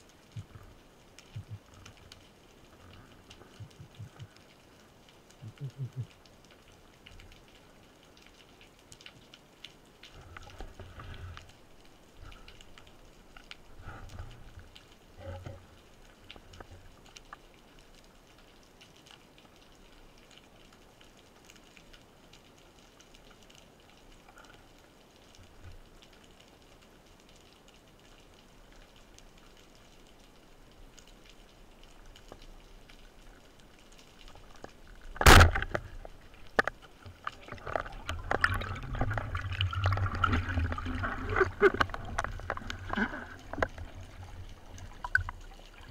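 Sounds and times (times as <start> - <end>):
faint underwater crackling: 0.0 - 45.9
speargun firing sharp crack: 35.2 - 35.6.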